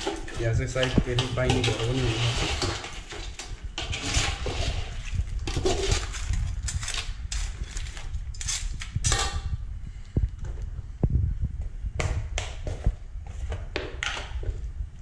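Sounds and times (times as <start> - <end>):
spoon scraping metal pot: 0.0 - 7.7.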